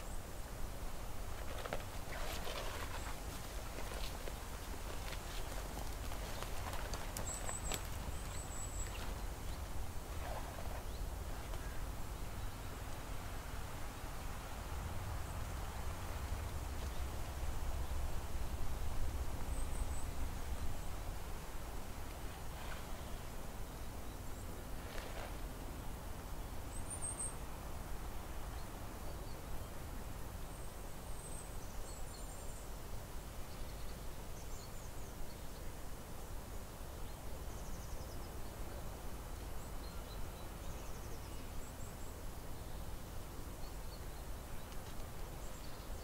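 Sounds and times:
songbird chirps: 0.0 - 46.0.

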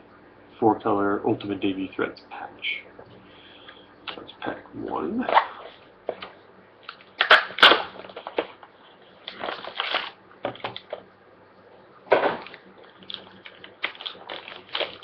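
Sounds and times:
wrapper tearing and crinkling: 7.2 - 7.9, 9.3 - 10.8, 12.4 - 15.0.

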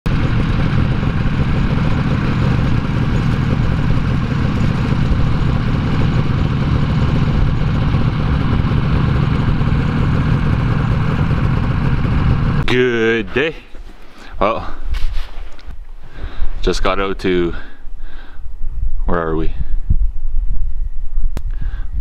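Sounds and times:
snowmobile engine running: 0.0 - 13.7.

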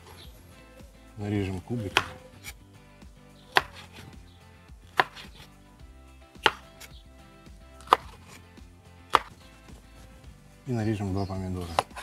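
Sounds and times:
knife chopping on wooden board: 1.8 - 2.6, 3.5 - 4.2, 4.8 - 5.5, 6.4 - 7.0, 7.8 - 8.4, 9.1 - 9.5, 11.6 - 12.0.

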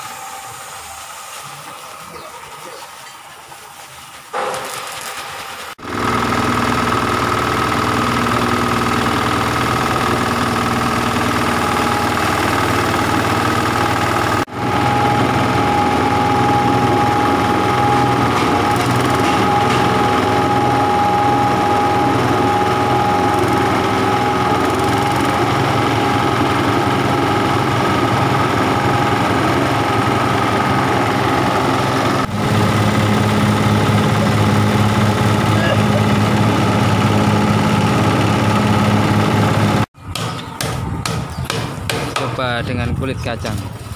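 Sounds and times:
grinder machine humming: 0.0 - 3.3, 4.3 - 39.9.

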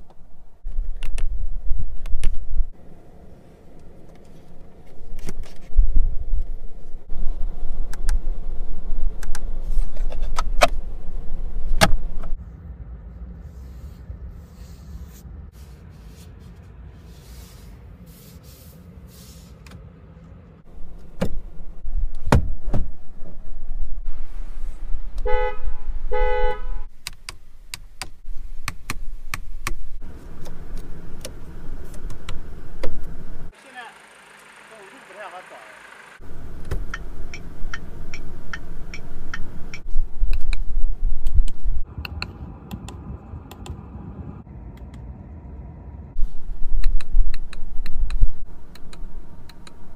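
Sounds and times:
car horn toots: 25.2 - 26.9.

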